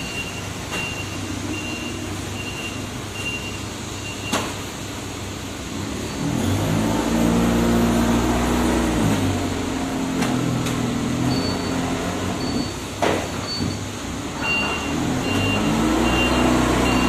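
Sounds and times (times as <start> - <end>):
short high warning beeps: 0.0 - 4.4, 13.5 - 17.0
forklift engine running: 0.0 - 17.0.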